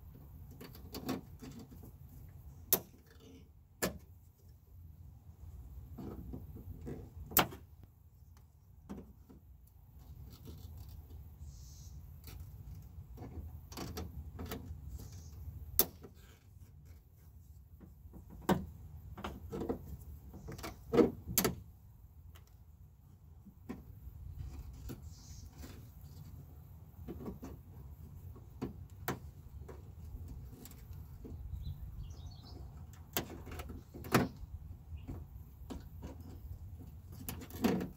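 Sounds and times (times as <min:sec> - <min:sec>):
clicks and knocks of door parts: 0:00.5 - 0:01.9, 0:02.7 - 0:04.1, 0:12.2 - 0:15.1, 0:17.7 - 0:21.7, 0:27.0 - 0:31.5, 0:32.6 - 0:37.9.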